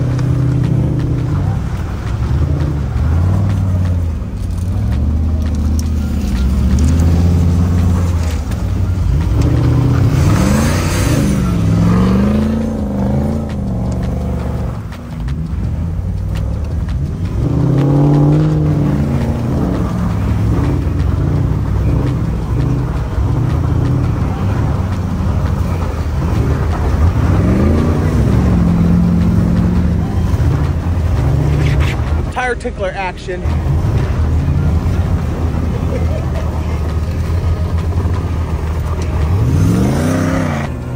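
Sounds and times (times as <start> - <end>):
off-road engines revving: 0.0 - 40.9.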